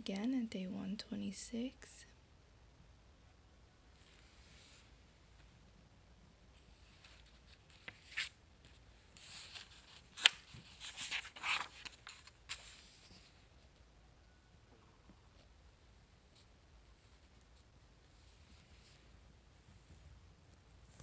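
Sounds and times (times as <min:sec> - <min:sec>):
book pages being turned: 0:06.8 - 0:13.5.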